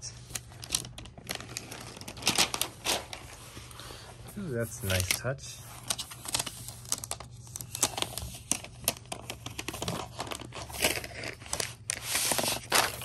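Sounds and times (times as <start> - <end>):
plastic wrap peeling and crinkling: 0.3 - 3.7.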